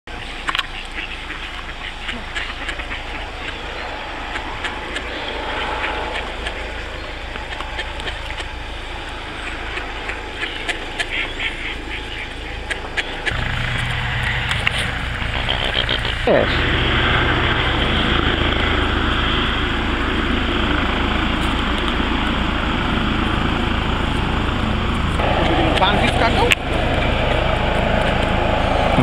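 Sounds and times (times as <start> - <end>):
ducks quacking: 0.1 - 20.3
deep hum: 0.1 - 29.0
steady low rumble: 0.1 - 29.0.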